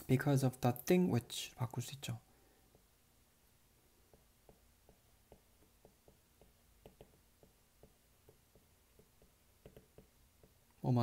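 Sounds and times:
stylus tapping on tablet: 0:02.7 - 0:03.0, 0:04.0 - 0:10.8.

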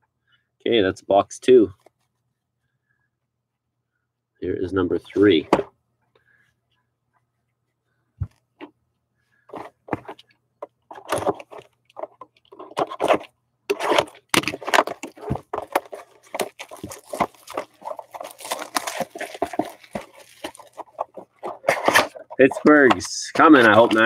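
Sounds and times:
rustling and crinkling wrappers: 0:10.9 - 0:24.0.

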